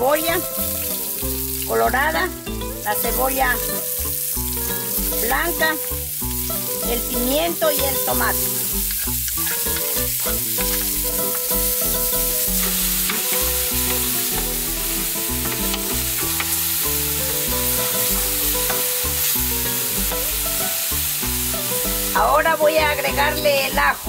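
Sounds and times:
background music low notes: 0.0s - 24.0s
vegetables sizzling in oil: 0.0s - 24.0s.

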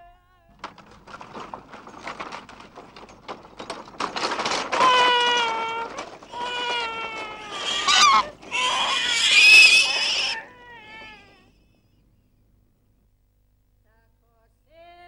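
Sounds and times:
cartoon baby crying: 4.8s - 11.6s.

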